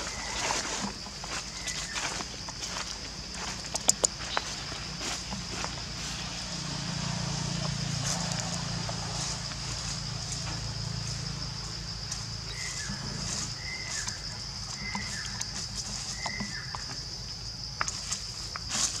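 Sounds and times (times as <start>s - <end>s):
sharp clicks: 3.7s - 4.2s.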